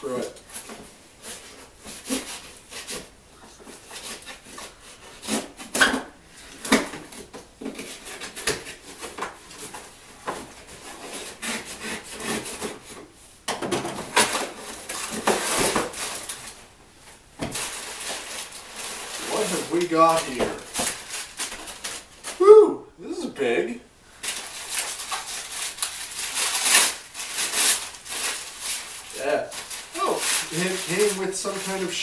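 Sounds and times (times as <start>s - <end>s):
knife sawing through cardboard: 10.8s - 12.9s, 29.9s - 32.0s
cardboard ripping: 14.1s - 16.6s, 17.4s - 22.4s, 24.2s - 32.0s.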